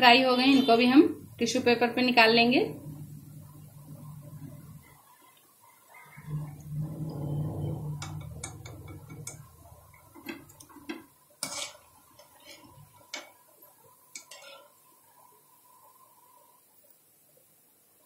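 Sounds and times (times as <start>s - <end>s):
low hum: 0.8s - 5.3s, 5.9s - 11.2s.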